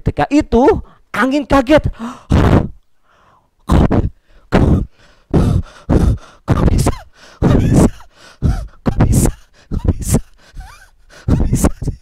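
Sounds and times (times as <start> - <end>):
man gasping in surprise: 2.0 - 2.3.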